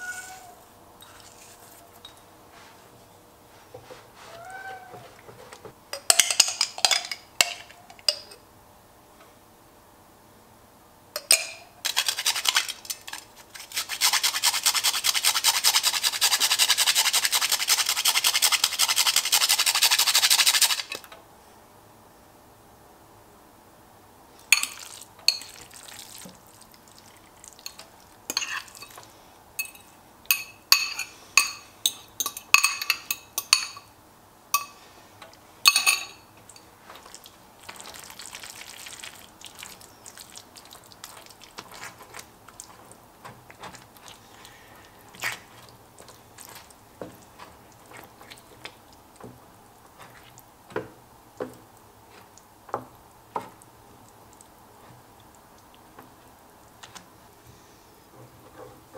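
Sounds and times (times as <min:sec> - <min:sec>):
sauce stirred in pan: 0:11.9 - 0:21.0, 0:24.6 - 0:30.4, 0:36.4 - 0:57.4
spatula clinking on glass bowl: 0:29.6 - 0:33.9, 0:35.7 - 0:36.7.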